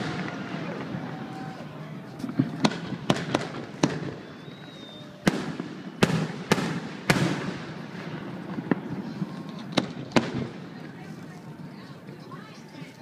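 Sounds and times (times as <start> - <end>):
firework booms with echo: 0.0 - 1.5, 2.1 - 10.8.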